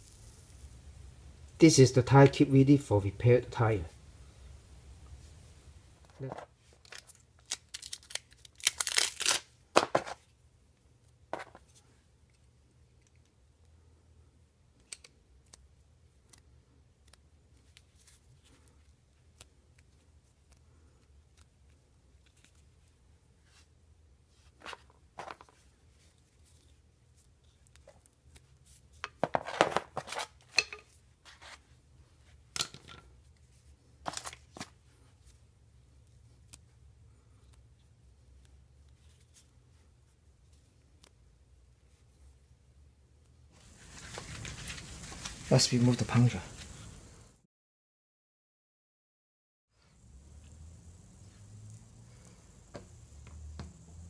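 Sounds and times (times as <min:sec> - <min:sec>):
rustling and tearing: 0:06.1 - 0:10.3, 0:15.4 - 0:23.7, 0:24.3 - 0:32.5, 0:33.2 - 0:35.4, 0:43.5 - 0:47.0.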